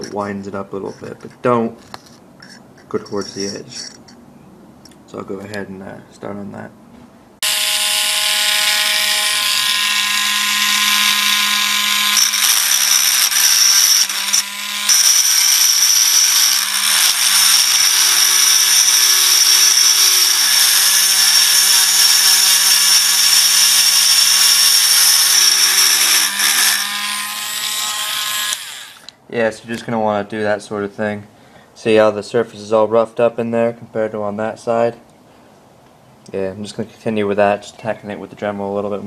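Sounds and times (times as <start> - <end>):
rotary tool grinding whine: 7.4 - 29.1.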